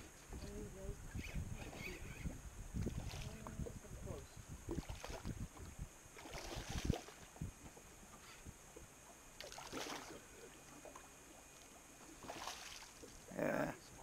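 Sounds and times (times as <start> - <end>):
fish splashing at the surface: 4.7 - 5.3, 6.2 - 7.2, 9.4 - 10.2, 12.2 - 13.1.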